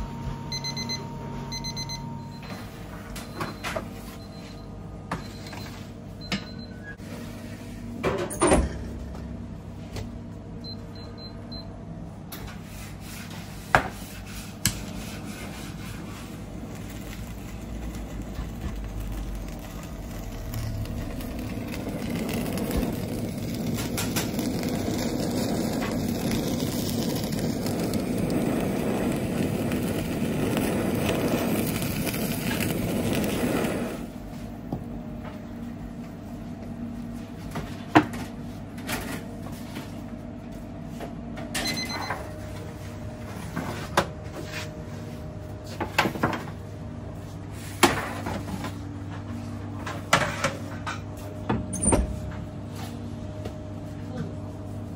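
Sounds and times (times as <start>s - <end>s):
gas torch hissing: 16.0s - 34.2s.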